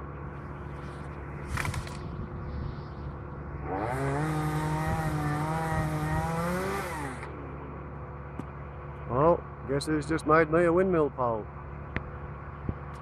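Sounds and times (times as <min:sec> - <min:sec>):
low engine hum: 0:00.0 - 0:13.0
chainsaw revving: 0:03.6 - 0:07.4.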